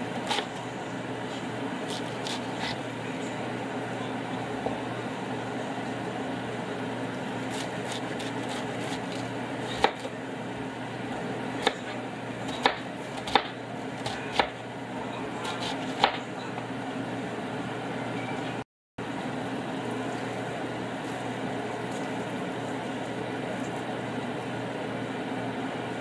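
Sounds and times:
knife cutting cabbage: 0:00.1 - 0:00.6, 0:01.8 - 0:02.8, 0:07.4 - 0:10.2, 0:15.4 - 0:16.2.

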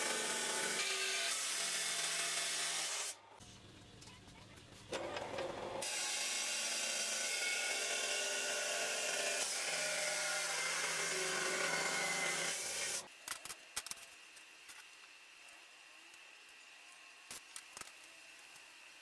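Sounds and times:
chop saw grinding through steel: 0:00.0 - 0:03.2, 0:05.8 - 0:13.1.

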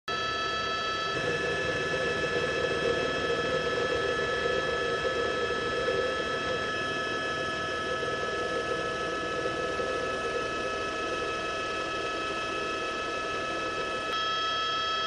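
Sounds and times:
helicopter engine and rotors droning: 0:00.1 - 0:15.0.

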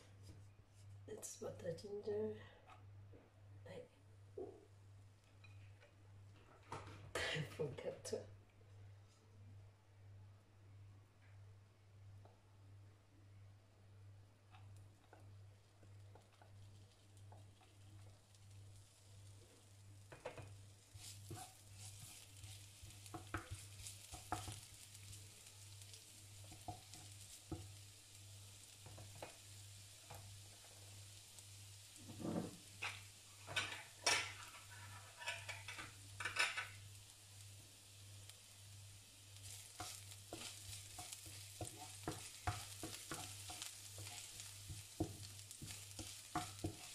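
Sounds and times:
garlic sizzling in oil: 0:14.4 - 0:46.9
wooden spatula scraping pan: 0:20.2 - 0:24.7, 0:32.0 - 0:36.7, 0:39.4 - 0:46.9.

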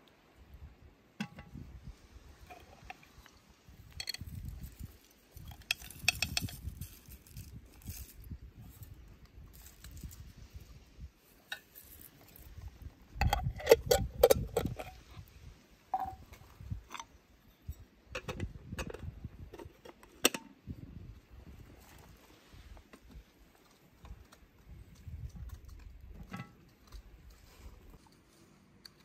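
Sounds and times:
glass jar and teapots clinking: 0:05.4 - 0:07.0, 0:16.0 - 0:16.3.

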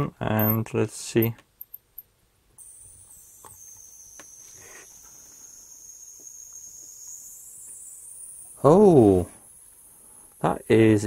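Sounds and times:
high-pitched hissing whine: 0:02.6 - 0:11.0.

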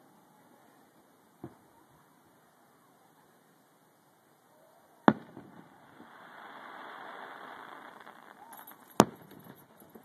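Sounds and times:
soft drawn-out crackle noise: 0:04.5 - 0:10.0.

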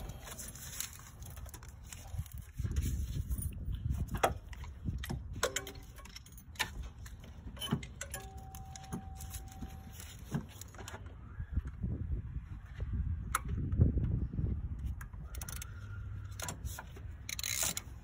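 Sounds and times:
hand tools clicking and clinking: 0:04.2 - 0:10.8.

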